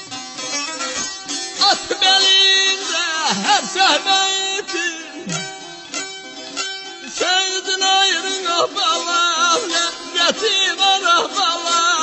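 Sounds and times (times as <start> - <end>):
plucked lute over drone: 0.0 - 12.0
man singing melismatic line: 1.6 - 5.7, 7.1 - 12.0.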